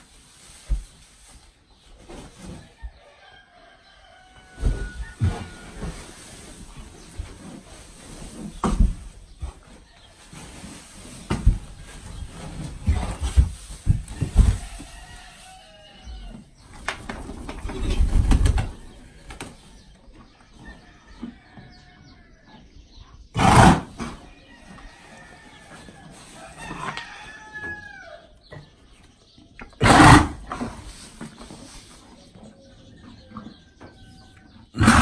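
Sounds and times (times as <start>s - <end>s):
rustle of wood shavings bedding: 10.1s - 16.0s
horse snorting: 23.3s - 24.2s, 29.8s - 30.8s, 34.8s - 35.0s.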